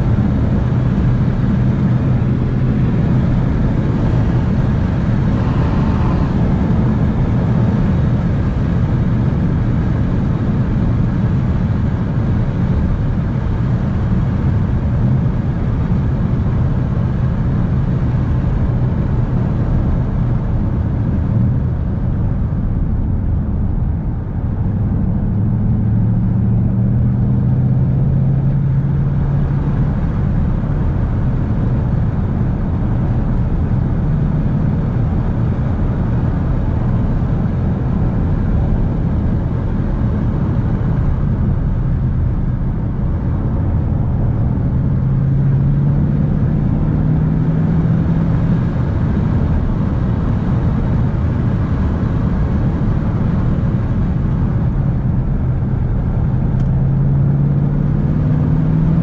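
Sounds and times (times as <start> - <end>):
tyre and road noise: 0.0 - 16.2
car engine hum: 0.0 - 59.0.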